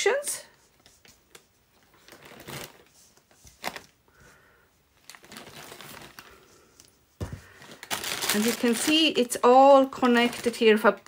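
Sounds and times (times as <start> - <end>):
wool rustling: 0.6 - 10.9
plastic bag crinkling: 1.8 - 2.9, 3.5 - 4.0, 5.0 - 11.0.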